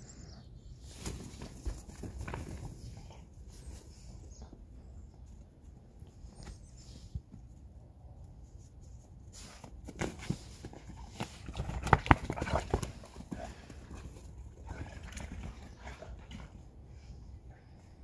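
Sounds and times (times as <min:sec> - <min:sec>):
dogs scuffling in snow: 0:08.6 - 0:11.5.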